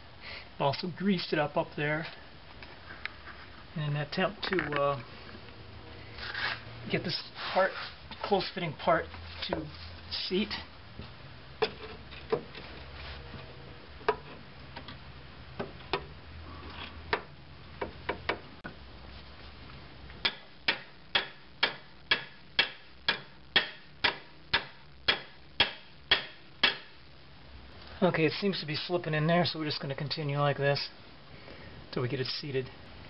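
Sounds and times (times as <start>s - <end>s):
hammer tapping metal: 20.2s - 26.9s.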